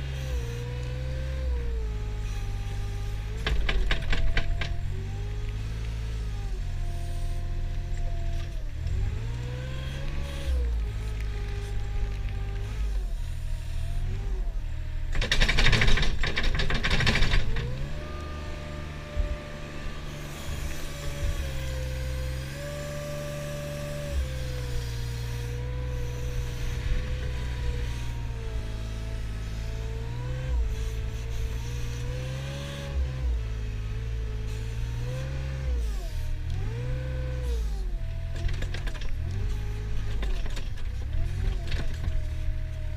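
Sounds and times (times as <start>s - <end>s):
loader diesel engine under load: 0.0s - 42.9s.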